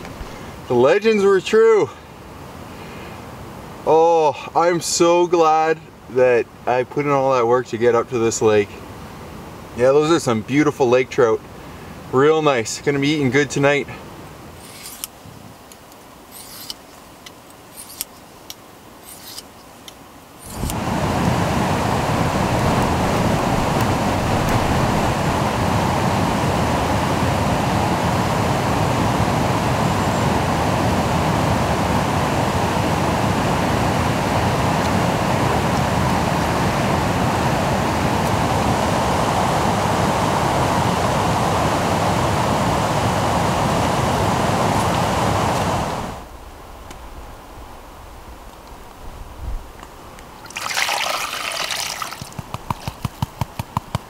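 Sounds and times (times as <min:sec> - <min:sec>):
fast-flowing river water: 0:00.0 - 0:00.9, 0:20.0 - 0:46.2, 0:50.3 - 0:53.0
knife scraping sharpening stone: 0:14.6 - 0:15.1, 0:16.3 - 0:16.9, 0:17.7 - 0:18.3, 0:19.0 - 0:19.5.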